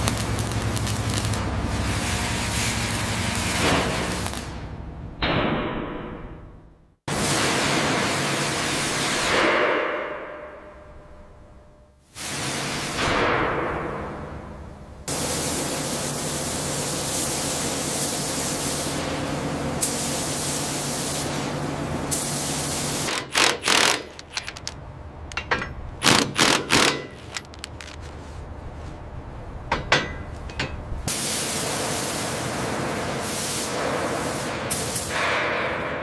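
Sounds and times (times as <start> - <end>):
impact wrench bursts: 23.0 - 28.0.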